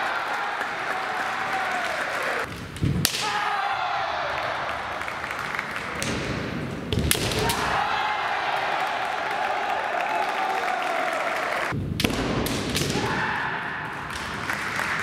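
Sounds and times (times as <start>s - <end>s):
fencers shouting: 3.1s - 5.0s, 7.2s - 11.6s.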